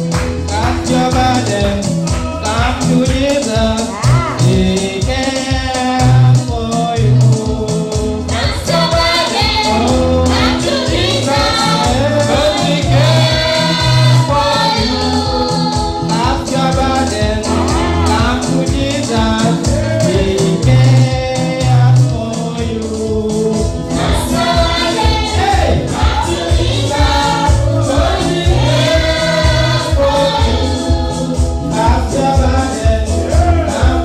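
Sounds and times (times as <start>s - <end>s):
lead voice singing: 0.4s - 34.0s
backing singers: 7.2s - 21.8s, 23.1s - 34.0s.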